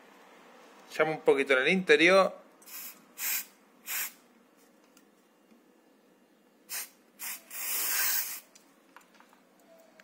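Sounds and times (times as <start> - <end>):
aerosol can spraying: 2.7 - 4.2, 6.7 - 8.5.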